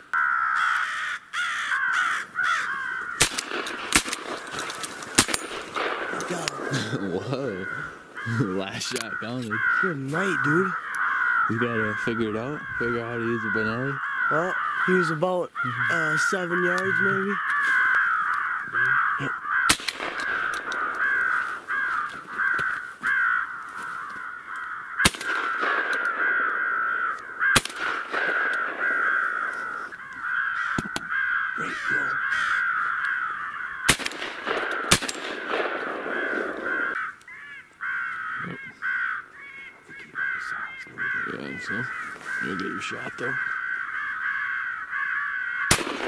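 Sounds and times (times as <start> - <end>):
crows cawing: 0.0 - 46.0
sharp bangs: 3.2 - 7.0, 19.7 - 21.7, 25.0 - 29.7, 33.8 - 37.0, 45.7 - 46.0.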